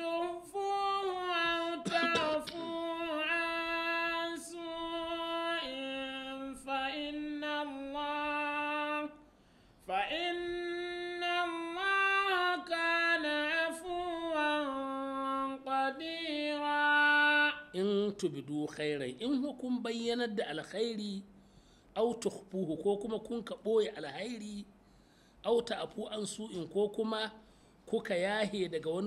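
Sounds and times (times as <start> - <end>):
person chanting melodic recitation: 0.0 - 9.2, 9.9 - 18.5.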